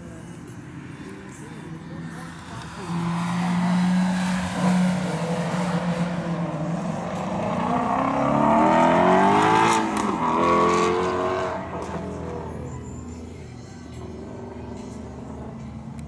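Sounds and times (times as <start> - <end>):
car engine revving hard: 2.9 - 11.9.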